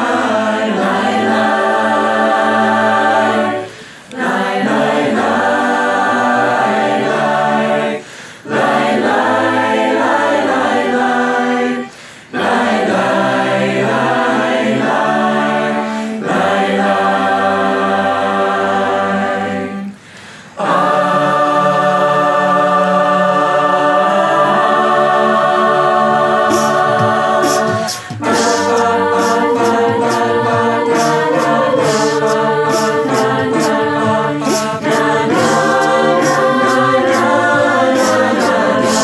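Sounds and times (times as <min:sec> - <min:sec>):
choir singing in harmony: 0:00.0 - 0:39.0.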